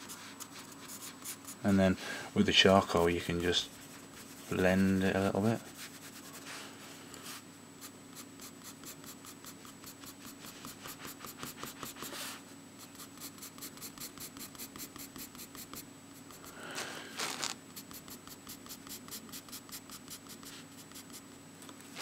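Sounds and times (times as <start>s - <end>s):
pencil scratching on paper: 0.0s - 1.6s, 7.8s - 16.5s, 17.3s - 21.2s
long scrapes on paper: 16.4s - 17.6s.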